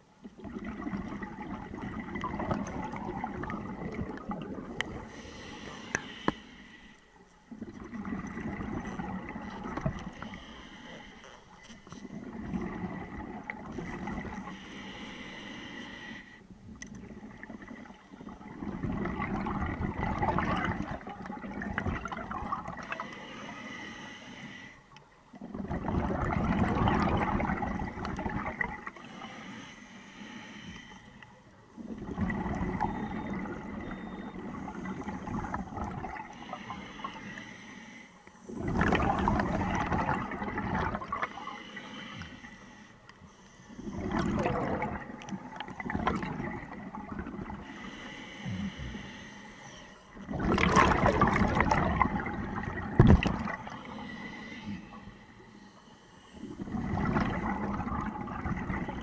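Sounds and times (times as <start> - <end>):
rush of exhaled bubbles: 0.2 - 6.1, 7.5 - 10.4, 12.1 - 14.6, 17.0 - 23.1, 25.4 - 29.2, 31.8 - 36.9, 38.5 - 41.6, 43.8 - 47.7, 50.2 - 54.4, 56.4 - 59.0
diver breathing through regulator: 4.9 - 7.1, 8.8 - 12.2, 13.8 - 16.5, 22.8 - 24.9, 28.9 - 31.3, 36.2 - 39.7, 41.0 - 44.8, 47.6 - 50.3, 53.4 - 57.2.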